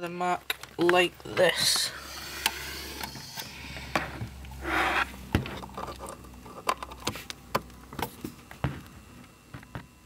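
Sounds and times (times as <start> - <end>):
low steady hum: 0.0 - 10.0
rustling scrape: 4.6 - 5.2.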